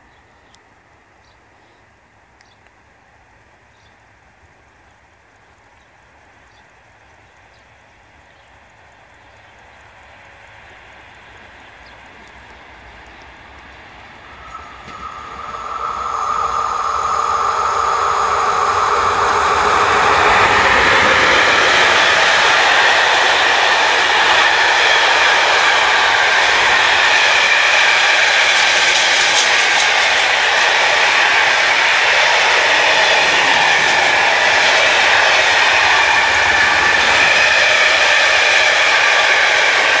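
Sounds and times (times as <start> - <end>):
locomotive whine: 8.8 - 40.0
high squealing tones: 14.2 - 40.0.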